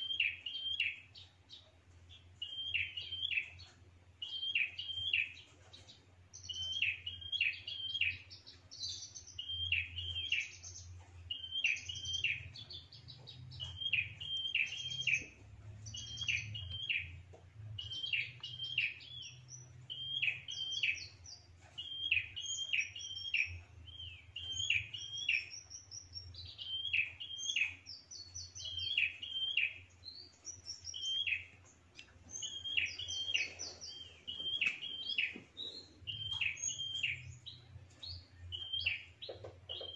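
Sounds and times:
bird chirping: 0.0s - 39.9s
bird trilling: 32.3s - 37.3s.

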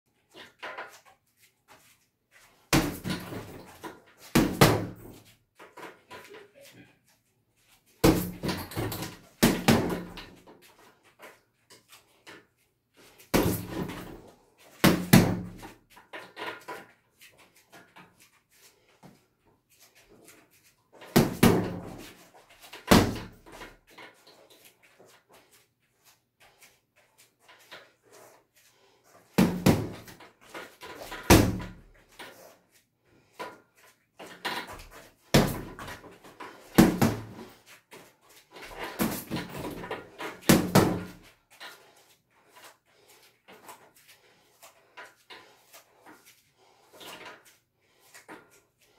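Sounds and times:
punches thudding on heavy bag: 2.7s - 3.6s, 4.4s - 5.1s, 8.0s - 10.2s, 14.8s - 15.6s, 21.2s - 22.0s, 22.9s - 23.4s, 29.4s - 30.1s, 35.3s - 35.9s, 36.8s - 37.5s, 40.5s - 41.2s.

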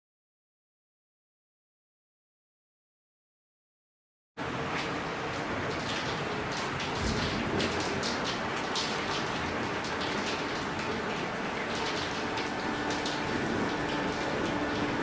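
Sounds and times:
steady rain falling: 4.4s - 15.0s
drop splashes: 4.8s - 15.0s.

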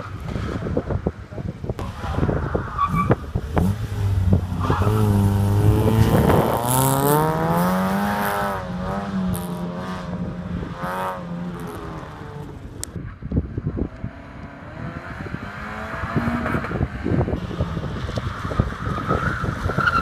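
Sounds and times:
car engine accelerating: 1.8s - 13.0s.

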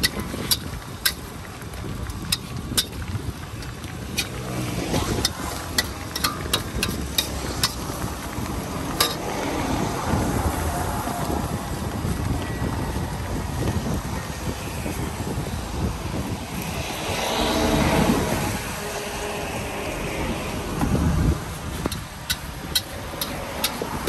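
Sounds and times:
metal spatula clacking on wok: 0.0s - 1.3s, 2.0s - 4.4s, 5.2s - 8.0s, 8.9s - 9.3s, 21.9s - 24.0s.

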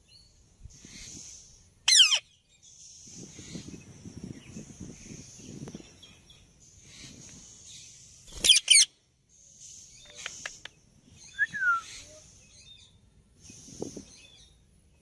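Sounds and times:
parakeets screeching: 1.9s - 2.2s, 8.3s - 8.9s
parakeet clicks: 10.0s - 10.8s.

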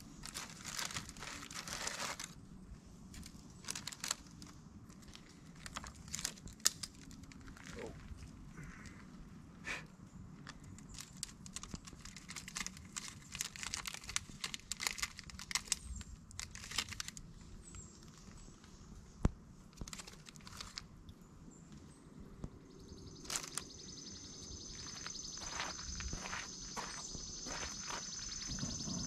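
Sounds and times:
crinkling and crackling clicks: 0.0s - 2.4s, 3.1s - 9.2s, 10.4s - 21.0s, 23.2s - 23.6s.

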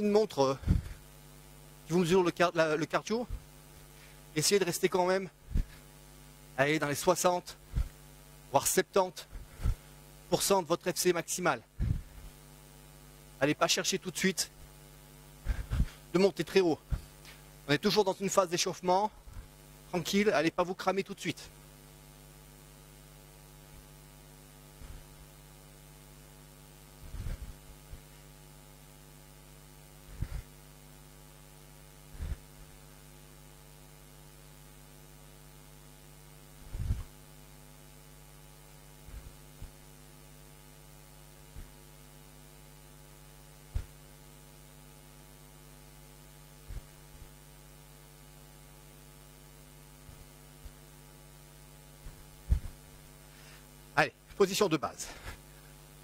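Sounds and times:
steady low mains hum: 0.0s - 56.0s
soft low thumps: 11.8s - 12.3s, 52.0s - 52.9s.

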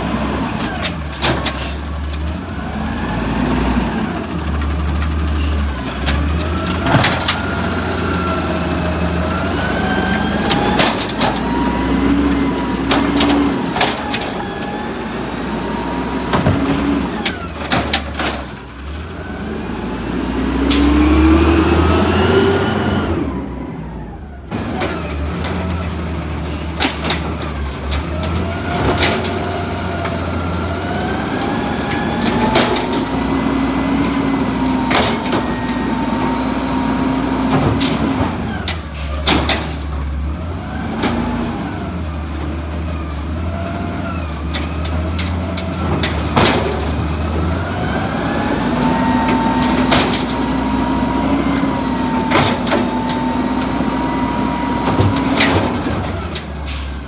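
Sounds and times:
bangs and clanks of carts: 0.0s - 2.5s, 3.1s - 7.9s, 9.1s - 15.4s, 16.0s - 19.4s, 23.9s - 53.8s, 54.4s - 57.0s
garbage truck diesel engine: 0.0s - 57.0s.

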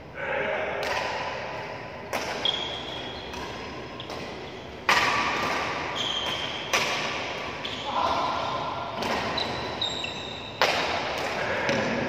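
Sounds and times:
racket hitting shuttlecock: 0.8s - 1.4s, 2.1s - 9.8s, 10.6s - 12.0s
high squeak: 5.9s - 6.7s, 9.3s - 10.6s.

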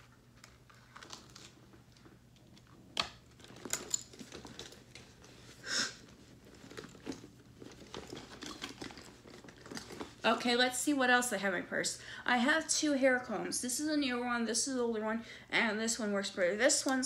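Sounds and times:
rummaging in handbag: 3.2s - 10.4s.

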